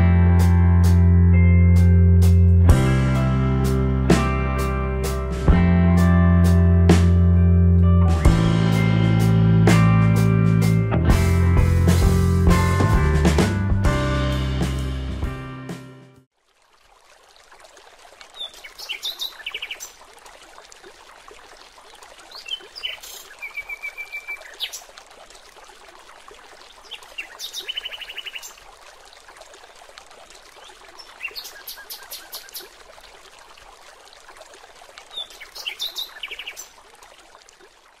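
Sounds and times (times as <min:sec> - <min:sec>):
water trickling: 0:16.3 - 0:38.0
small birds chirping: 0:18.4 - 0:20.0, 0:22.3 - 0:24.9, 0:26.6 - 0:28.6, 0:30.6 - 0:32.7, 0:35.1 - 0:36.8.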